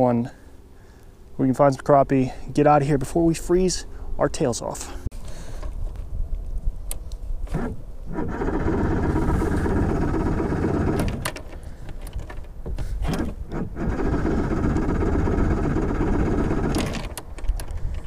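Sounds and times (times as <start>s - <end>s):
outboard motor cranking and running: 7.5s - 17.4s.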